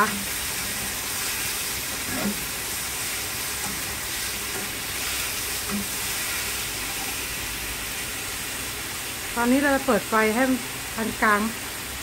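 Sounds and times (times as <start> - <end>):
spatula scraping frying pan: 0.0 - 7.3
food sizzling in hot oil: 0.0 - 12.0.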